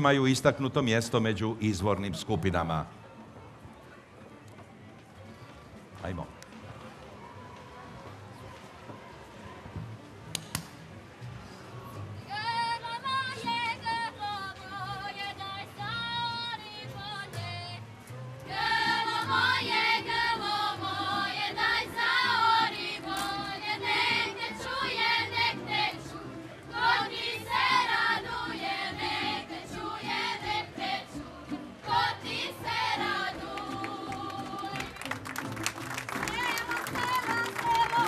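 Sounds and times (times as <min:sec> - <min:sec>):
women and girls singing: 0:12.3 - 0:17.8, 0:18.4 - 0:34.9, 0:36.3 - 0:38.0.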